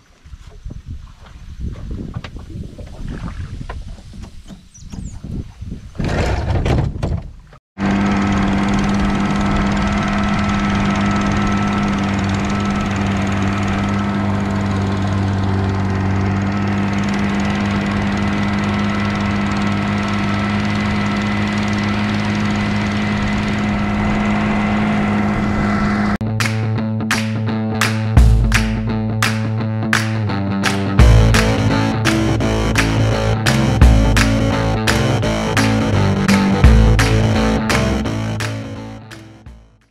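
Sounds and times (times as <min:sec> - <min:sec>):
outboard motor running: 0:07.8 - 0:26.2, 0:30.7 - 0:39.8.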